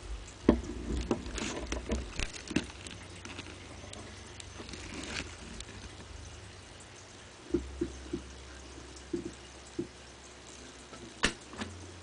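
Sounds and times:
low steady hum: 0.0 - 12.0
dry clicks and crackles: 0.3 - 6.1.

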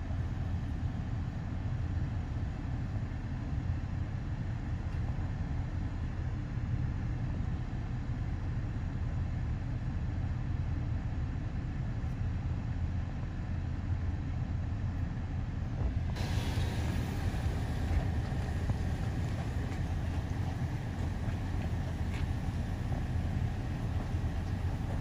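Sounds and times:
wind buffeting microphone: 15.8 - 25.0
bright hiss: 16.2 - 24.9.

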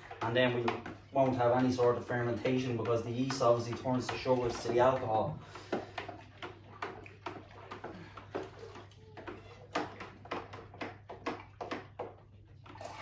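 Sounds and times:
stick stirring liquid in bucket: 0.0 - 13.0.

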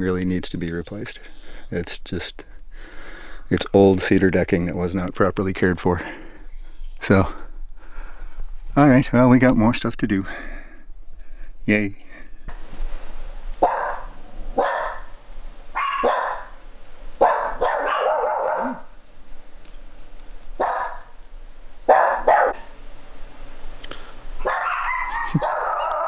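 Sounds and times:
small dogs barking: 13.6 - 16.6, 17.2 - 19.0, 20.6 - 21.1, 21.8 - 22.8, 24.4 - 26.0.

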